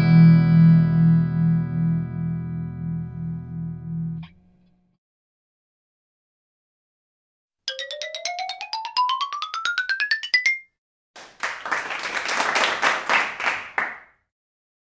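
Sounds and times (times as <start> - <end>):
people clapping: 11.2 - 14.2.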